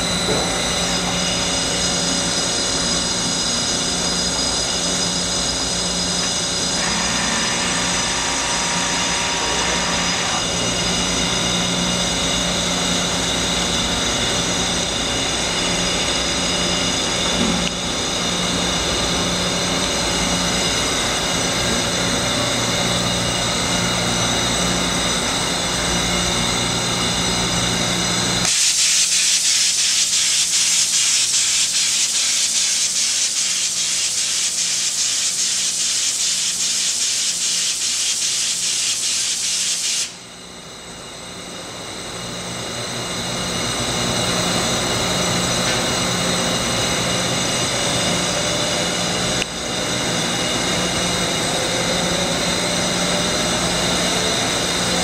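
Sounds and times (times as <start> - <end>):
rising whine: 0.0 - 28.7, 40.0 - 55.0
machine running hum: 0.0 - 39.5, 40.1 - 55.0
fluttering spray hiss: 28.5 - 40.2.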